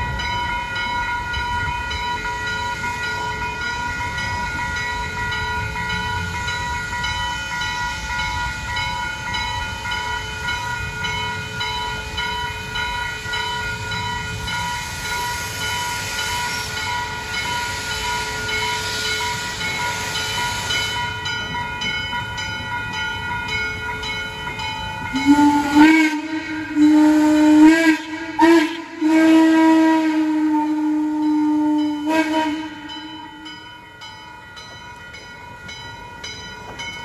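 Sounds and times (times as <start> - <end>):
railroad crossing bells ringing: 0.0 - 37.0
hiss: 14.6 - 21.2.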